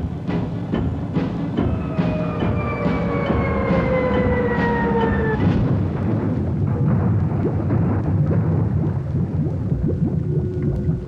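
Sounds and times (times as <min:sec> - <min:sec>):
falling whine: 0:00.0 - 0:07.0
churning rush of water and bubbles: 0:00.0 - 0:11.0.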